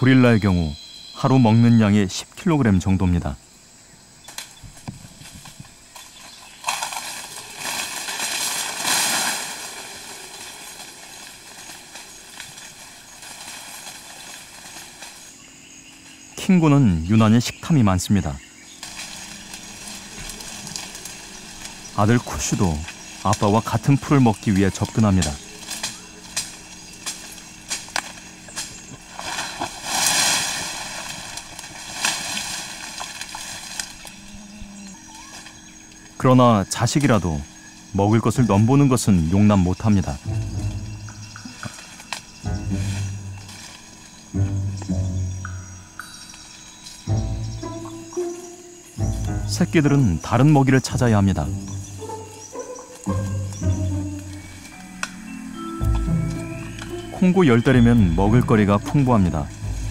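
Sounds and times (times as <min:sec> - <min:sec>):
insects droning: 0:00.0 - 0:59.9
leaves and grass rustling: 0:00.0 - 0:59.9
stems snapping: 0:04.2 - 0:15.4, 0:18.7 - 0:55.2, 0:55.9 - 0:59.9
loud hiss: 0:07.2 - 0:15.4, 0:18.8 - 0:34.0.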